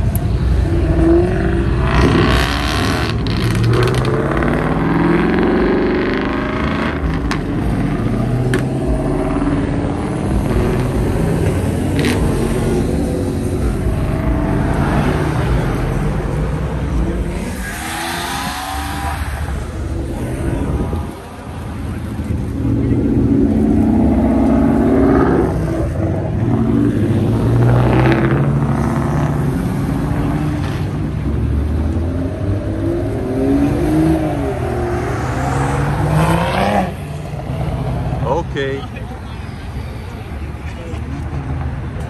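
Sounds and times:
car engines revving and accelerating: 0.0s - 42.0s.

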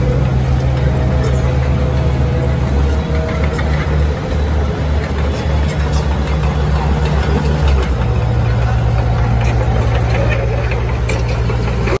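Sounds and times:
compactor roller diesel engine: 0.0s - 12.0s.

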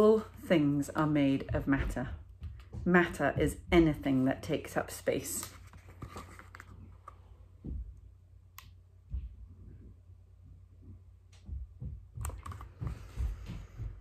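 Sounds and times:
book handling rustles: 5.0s - 7.3s.

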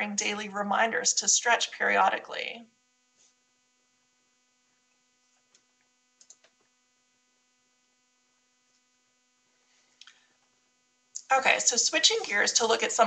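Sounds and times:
faint electrical hum: 0.0s - 13.0s
faint clicks: 5.5s - 6.7s.

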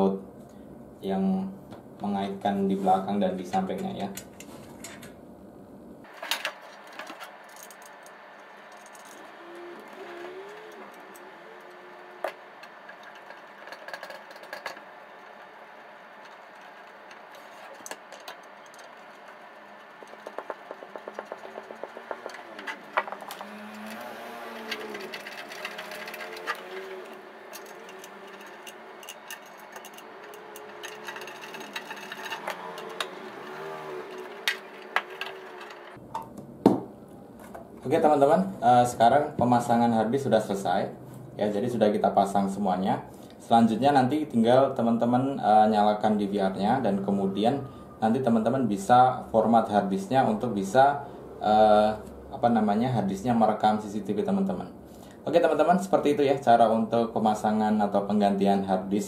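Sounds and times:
rapid ticks: 9.8s - 23.4s
screwdriver driving screws: 20.0s - 35.8s.

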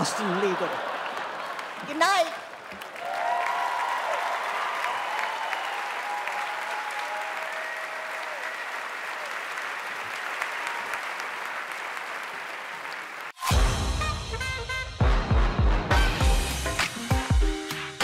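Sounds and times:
audience applauding: 0.0s - 13.5s
loud music: 13.4s - 18.0s.

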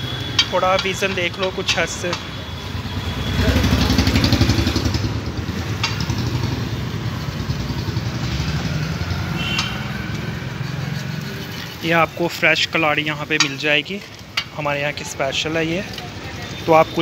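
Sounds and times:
vehicle engine rumbling: 0.0s - 17.0s.

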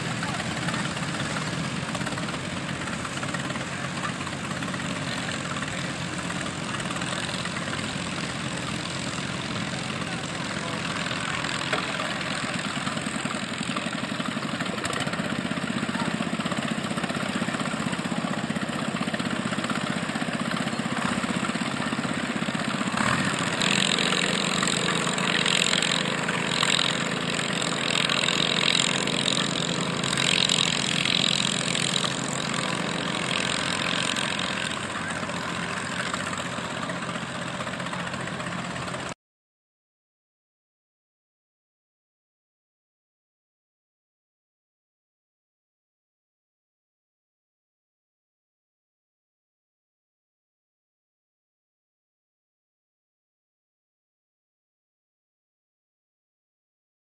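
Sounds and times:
small tractor engines running: 0.0s - 39.2s
uneven engine buzz: 0.0s - 39.2s.

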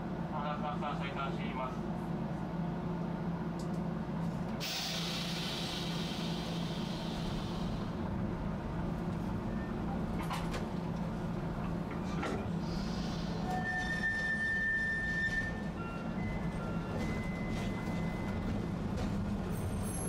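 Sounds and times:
streetcar humming: 0.0s - 20.0s
compressed air hiss: 4.6s - 7.8s.

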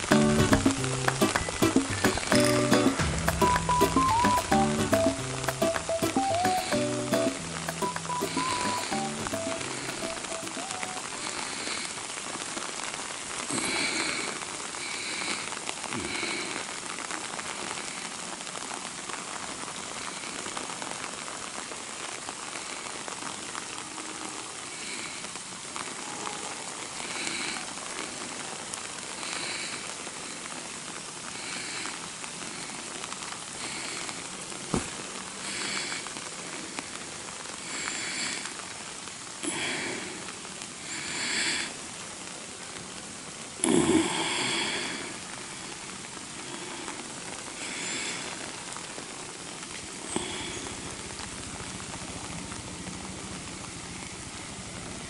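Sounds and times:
steady rain falling: 0.0s - 55.0s
short high chirps: 1.9s - 11.0s.

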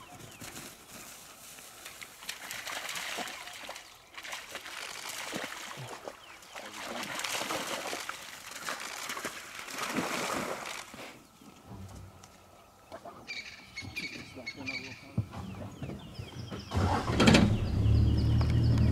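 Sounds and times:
dogs splashing through water: 0.4s - 11.0s.

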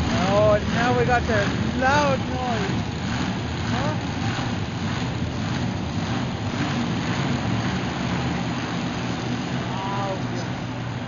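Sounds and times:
monster truck engines running: 0.0s - 11.0s.

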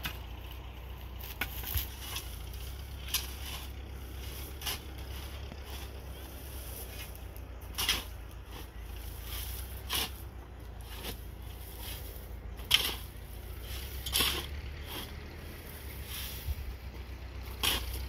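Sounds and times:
shovel scraping dry soil: 0.0s - 18.0s.

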